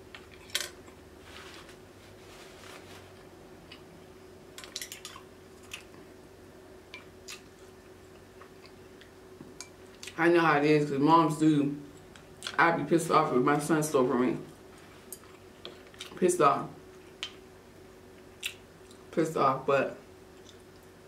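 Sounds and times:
soft wet chewing: 0:06.9 - 0:10.2, 0:14.8 - 0:16.2, 0:18.1 - 0:19.1, 0:20.3 - 0:21.0.

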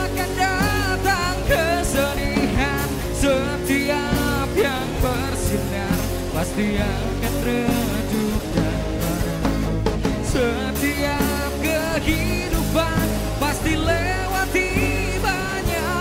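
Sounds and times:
man singing: 0:00.0 - 0:16.0
rock band playing live: 0:00.0 - 0:16.0.

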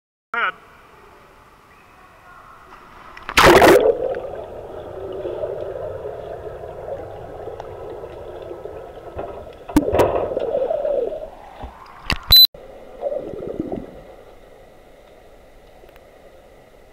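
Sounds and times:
splash into swimming pool: 0:02.8 - 0:04.4
underwater gurgling and bubbling: 0:03.4 - 0:11.6, 0:13.0 - 0:14.4.

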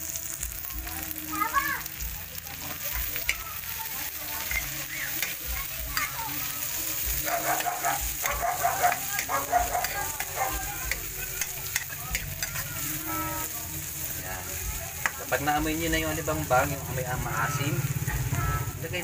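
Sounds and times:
leaves sizzling in a wok: 0:00.0 - 0:19.0
metal spatula scraping pan: 0:04.4 - 0:06.5, 0:07.1 - 0:14.0.

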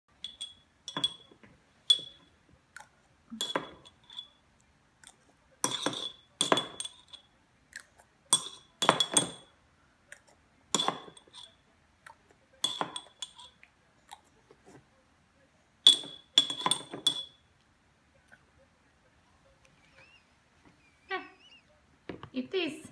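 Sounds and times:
metal spoon clinking glass jar: 0:00.1 - 0:02.3, 0:03.4 - 0:04.4, 0:05.6 - 0:07.3, 0:08.3 - 0:09.5, 0:10.7 - 0:11.6, 0:12.6 - 0:13.6, 0:15.9 - 0:17.4.

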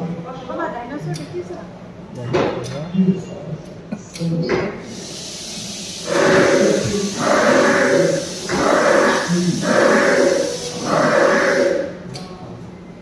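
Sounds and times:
dinosaur roar over loudspeakers: 0:06.0 - 0:12.0.

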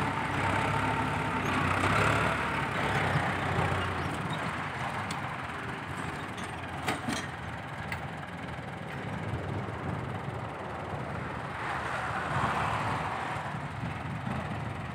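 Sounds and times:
tractor engine working: 0:00.0 - 0:11.6
dump truck diesel engine: 0:00.0 - 0:14.9.

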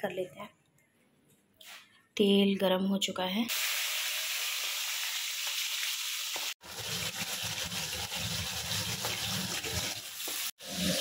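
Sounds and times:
fish sizzling in hot oil: 0:03.5 - 0:11.0.

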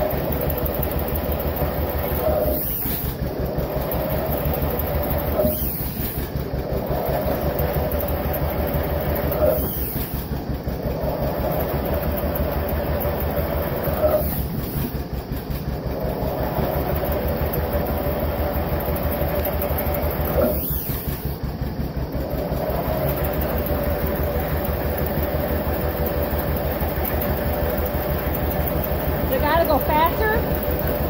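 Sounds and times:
tractor engine exhaust beat: 0:10.2 - 0:31.0.

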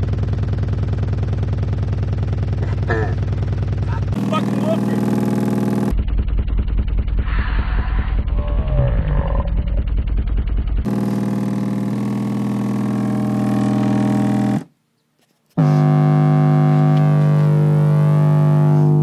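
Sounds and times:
distorted pulsing bass: 0:00.9 - 0:14.7, 0:15.6 - 0:19.0
steady synthesizer bass note: 0:04.0 - 0:14.7, 0:15.6 - 0:19.0.

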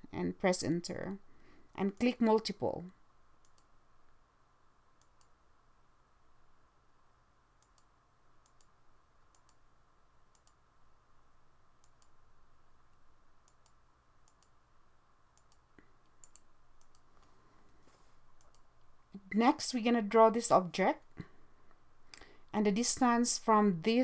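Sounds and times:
computer mouse clicks: 0:03.4 - 0:03.7, 0:05.0 - 0:05.4, 0:07.6 - 0:09.6, 0:10.3 - 0:10.6, 0:11.8 - 0:12.2, 0:13.4 - 0:14.6, 0:15.4 - 0:17.4, 0:18.4 - 0:18.7.

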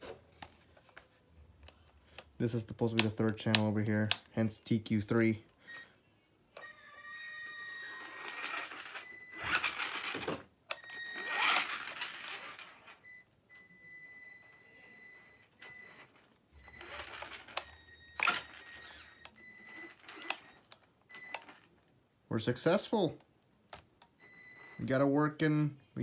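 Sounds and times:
electric toy car motor whining: 0:06.6 - 0:13.0, 0:16.7 - 0:20.6.

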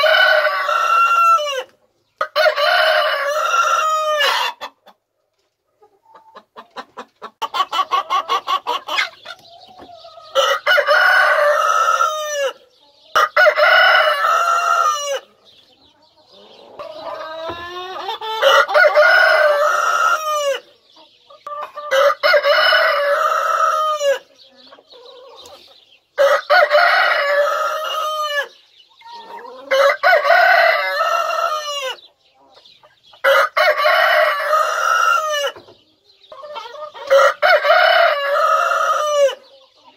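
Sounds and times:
rooster crowing: 0:00.0 - 0:01.7, 0:10.3 - 0:12.6, 0:18.4 - 0:20.6, 0:26.2 - 0:28.6, 0:29.7 - 0:32.0, 0:37.1 - 0:39.4
hens clucking: 0:00.0 - 0:39.9.

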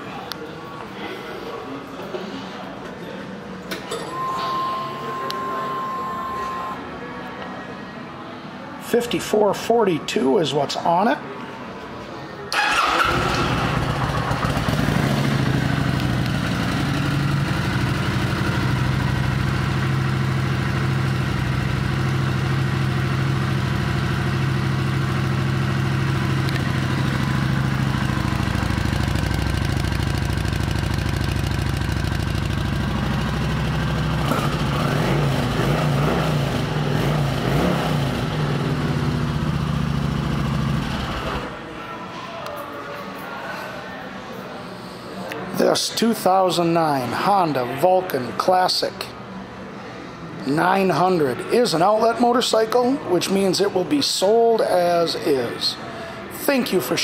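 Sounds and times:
motorcycle engine idling and revving: 0:12.6 - 0:41.6.

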